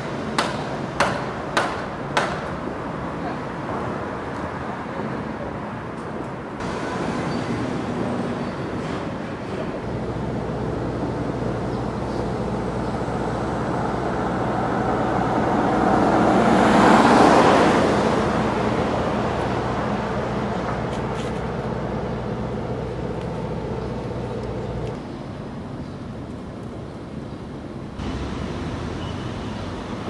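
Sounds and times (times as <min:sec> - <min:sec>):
car passing by: 0:13.6 - 0:21.6.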